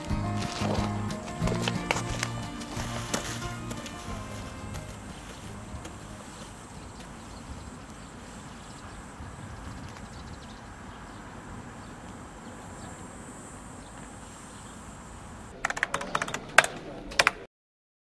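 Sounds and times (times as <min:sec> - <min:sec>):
wind rumble on microphone: 0:04.1 - 0:13.0
sharp clicks and taps: 0:15.6 - 0:17.4.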